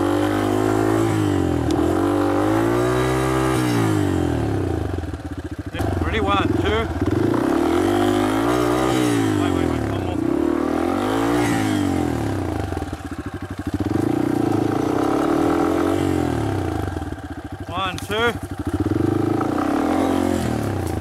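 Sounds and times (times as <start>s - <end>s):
dirt bike engine revving: 0.0s - 21.0s.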